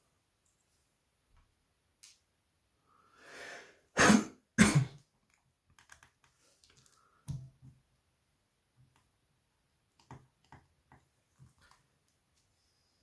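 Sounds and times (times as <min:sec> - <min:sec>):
person coughing: 0:04.0 - 0:05.0.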